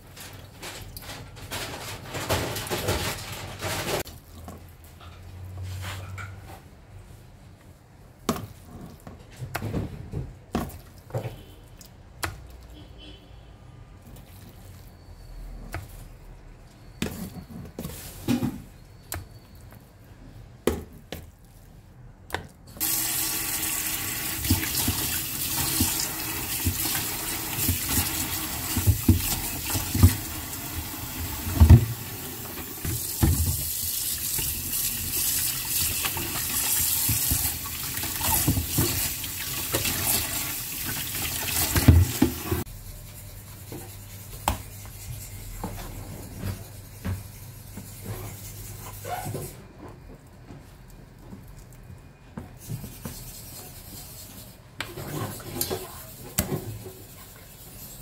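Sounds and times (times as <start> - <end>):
tap water running into plastic tub: 22.8 - 42.6.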